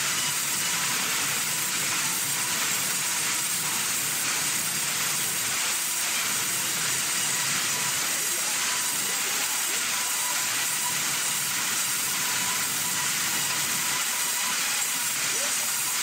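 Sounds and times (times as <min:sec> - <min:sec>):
band saws cutting timber: 0:00.0 - 0:16.0.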